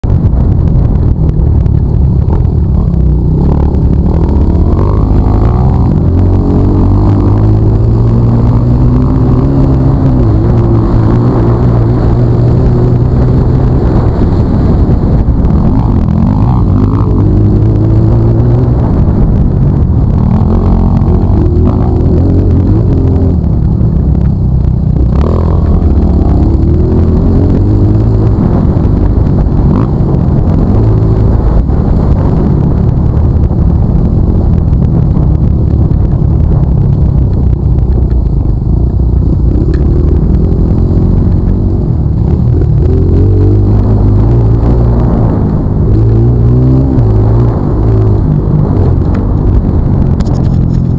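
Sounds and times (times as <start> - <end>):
dirt bike engine revving: 2.4 - 23.6.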